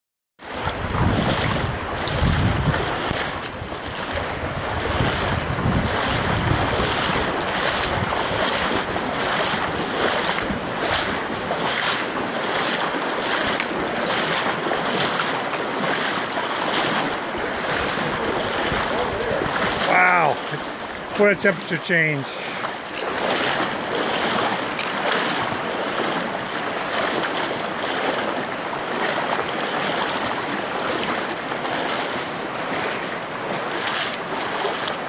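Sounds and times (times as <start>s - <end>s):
shallow river water rushing: 0.4s - 35.0s
wading splashes: 0.4s - 35.0s
wind rumble on microphone: 0.5s - 12.8s, 16.8s - 19.9s.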